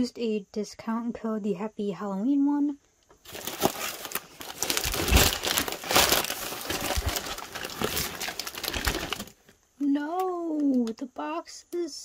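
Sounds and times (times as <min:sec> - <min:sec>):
cardboard and tape crinkling: 0:03.2 - 0:09.6.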